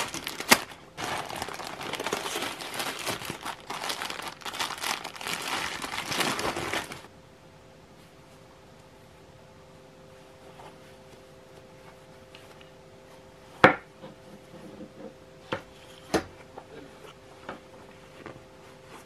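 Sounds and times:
fabric rustling: 0.0s - 7.1s.

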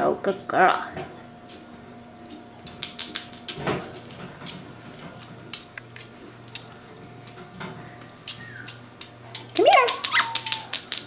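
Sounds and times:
puppy claws clicking on tile: 2.7s - 7.6s, 8.2s - 11.0s.

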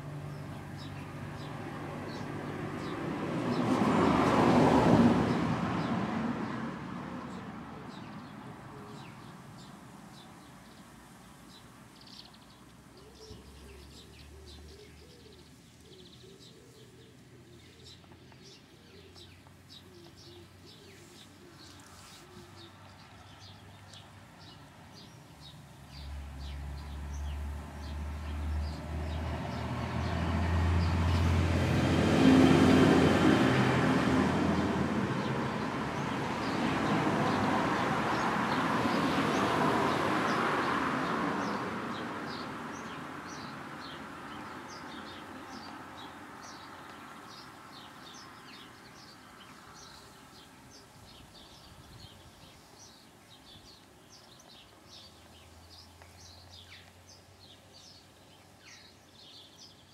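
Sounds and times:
small birds chirping: 0.0s - 3.8s, 7.2s - 31.3s, 34.6s - 59.9s
cooing calls: 13.0s - 22.9s.

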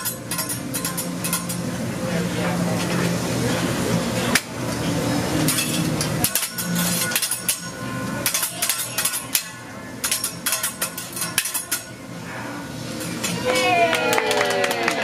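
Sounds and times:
metal spatula and knife clinking: 0.0s - 1.7s, 5.4s - 12.0s.

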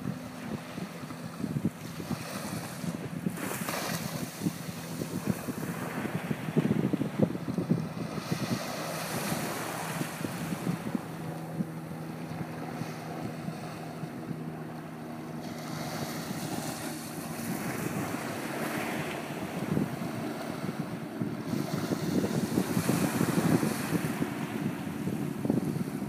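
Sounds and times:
small waves lapping on shore: 0.0s - 26.0s
steady low hum: 0.0s - 26.0s
wind buffeting microphone: 0.0s - 26.0s.

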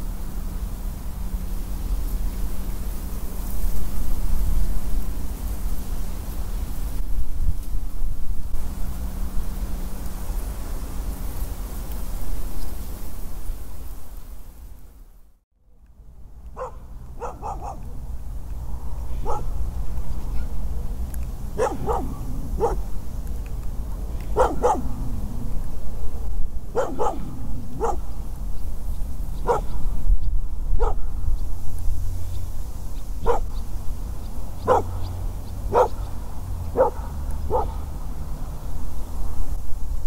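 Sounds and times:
low rumble: 15.7s - 40.0s
dog barking: 16.6s - 18.0s, 19.2s - 19.6s, 21.6s - 22.9s, 24.3s - 25.2s, 26.7s - 28.2s, 29.4s - 29.8s, 30.8s - 31.1s, 33.2s - 33.5s, 34.6s - 35.1s, 35.7s - 36.1s, 36.7s - 37.9s.

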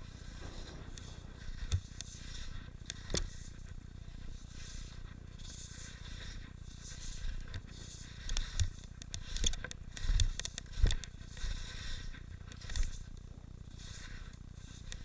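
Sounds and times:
skis scraping through snow: 0.0s - 2.3s.

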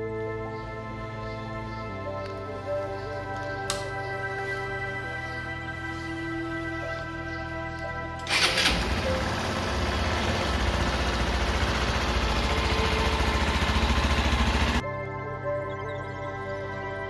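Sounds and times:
music: 0.0s - 17.0s
motorcycle engine idling: 8.3s - 14.8s.

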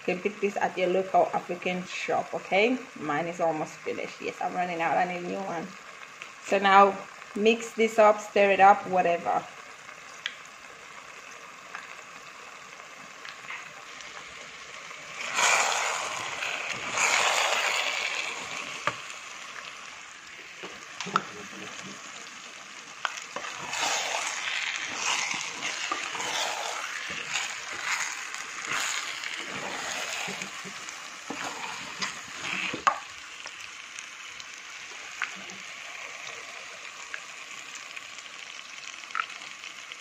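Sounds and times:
stew sizzling in a pot: 0.0s - 40.0s
stirring scraping in a pot: 15.1s - 19.1s, 23.0s - 33.1s.

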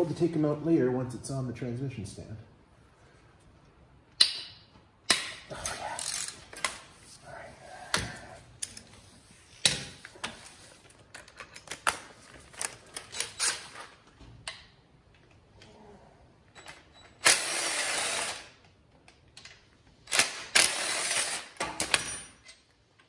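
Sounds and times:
metal tools clinking and clanking: 5.3s - 6.9s.

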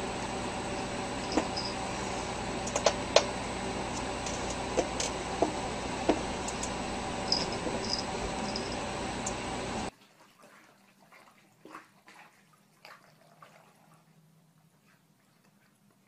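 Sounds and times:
room noise hiss and hum: 0.0s - 9.9s.

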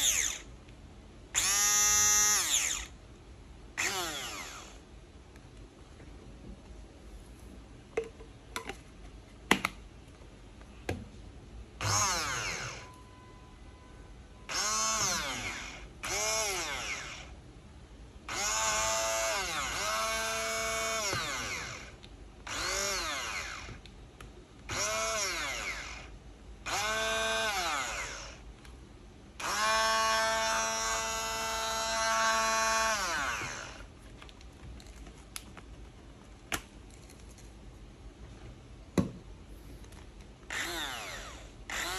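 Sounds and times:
hand blender motor whine: 0.0s - 0.4s, 1.4s - 2.9s, 3.8s - 4.8s, 11.8s - 12.9s, 14.5s - 17.2s, 18.3s - 23.8s, 29.4s - 33.8s, 40.5s - 41.9s.

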